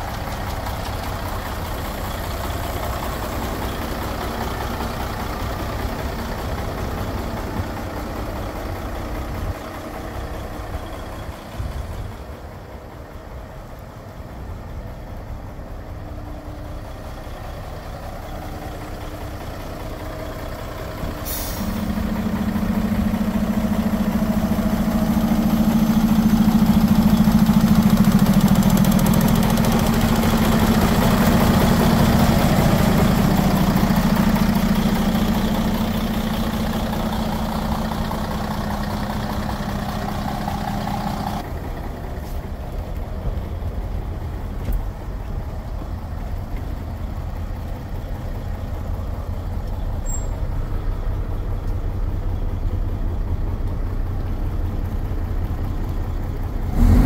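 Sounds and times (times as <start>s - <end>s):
truck diesel engine idling: 0.0s - 57.0s
engine droning at raised revs: 18.9s - 42.4s, 54.9s - 57.0s
air hiss: 21.2s - 22.0s.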